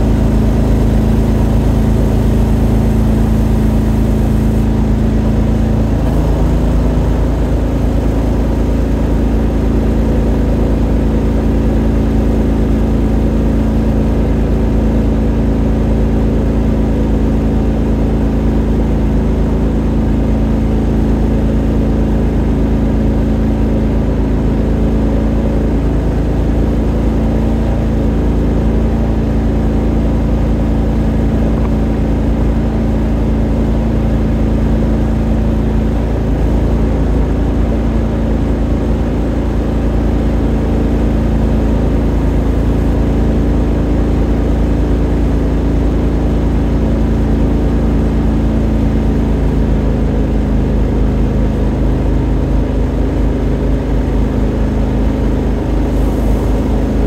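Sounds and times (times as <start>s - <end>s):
boat motor running: 0.0s - 57.0s.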